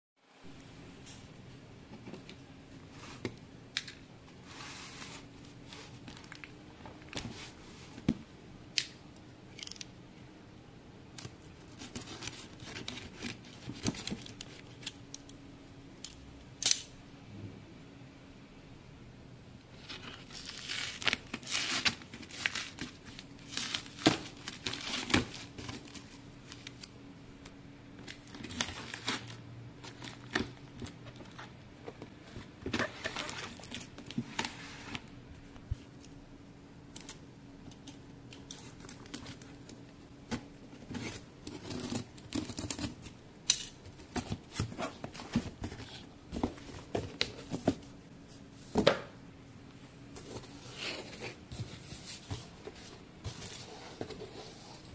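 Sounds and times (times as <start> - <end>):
packing tape tearing off box: 20.0 - 26.8, 40.9 - 46.0.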